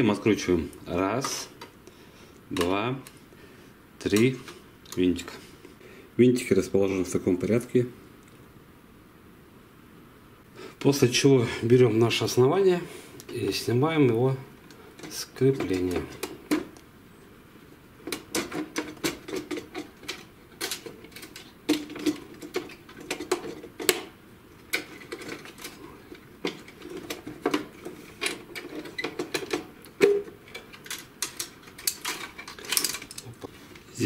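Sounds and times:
printer parts clicking and scraping: 0:18.0 - 0:24.1, 0:24.7 - 0:33.4.

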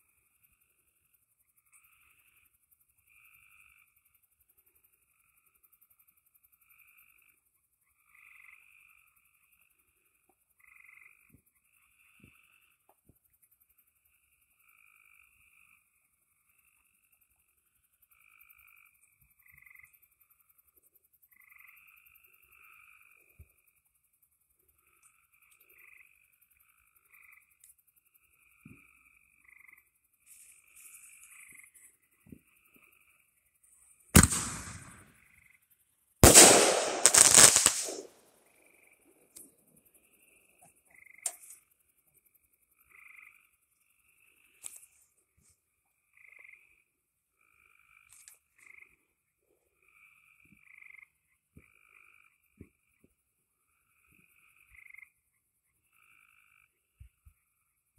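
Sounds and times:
frogs calling: 0:00.5 - 0:33.5, 0:39.8 - 0:45.1, 0:46.0 - 0:57.6
firework mortar launch bang: 0:34.2 - 0:35.0, 0:36.2 - 0:38.0.

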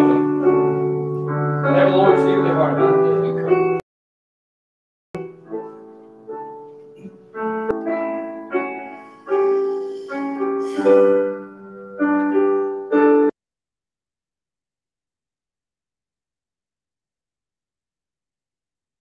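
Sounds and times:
piano playing a slow hymn: 0:00.0 - 0:03.8, 0:05.2 - 0:13.4.

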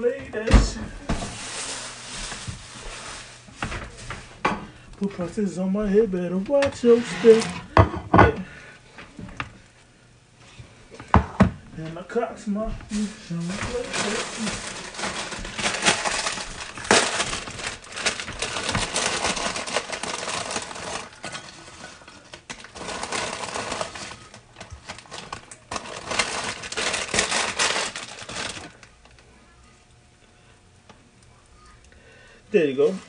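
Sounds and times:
plastic bag crinkling: 0:01.2 - 0:04.0, 0:12.9 - 0:29.2
chips rattling onto paper plate: 0:13.3 - 0:28.8.

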